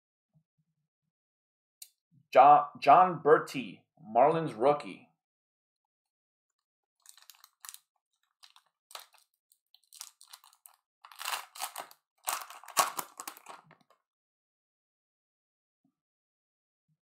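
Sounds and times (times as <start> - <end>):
card pack wrapper crinkling and tearing: 7.0 - 14.0.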